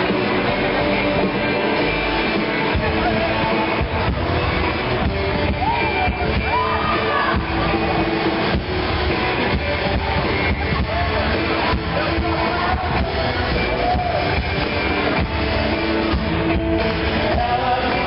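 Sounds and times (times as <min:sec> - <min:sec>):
live rock band playing: 0:00.0 - 0:18.0
person singing: 0:09.0 - 0:18.0.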